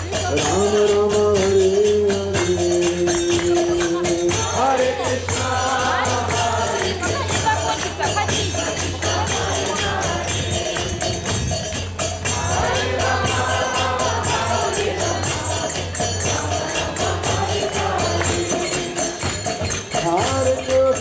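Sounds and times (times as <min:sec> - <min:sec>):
metallic hand percussion: 0:00.0 - 0:21.0
group of voices chanting: 0:04.0 - 0:11.3, 0:12.3 - 0:19.5.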